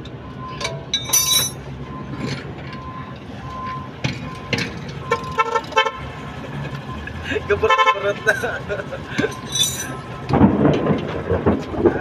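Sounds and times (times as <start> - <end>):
engines humming: 0.0 - 12.0
metal clinks: 0.6 - 1.6, 9.2 - 10.0
vehicle horn beeping: 5.0 - 6.1, 7.5 - 8.6.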